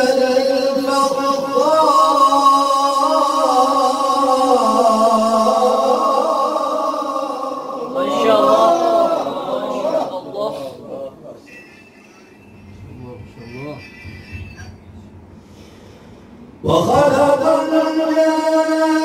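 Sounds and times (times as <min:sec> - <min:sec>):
man reciting melodically into microphone: 0:00.0 - 0:10.5, 0:16.6 - 0:19.0.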